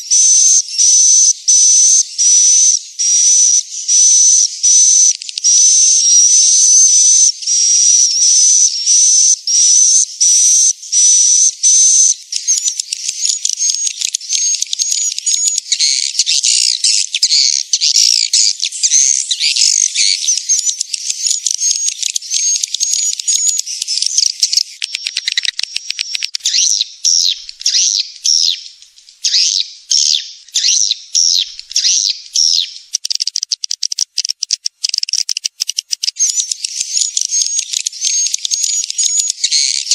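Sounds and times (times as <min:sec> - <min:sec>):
swiftlet calls: 0:18.8 - 0:39.1.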